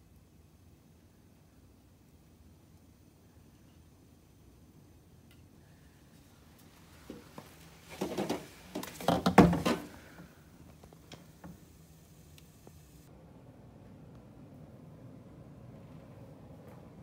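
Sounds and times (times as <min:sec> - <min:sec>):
items set down on plastic shelf: 0:07.9 - 0:10.3.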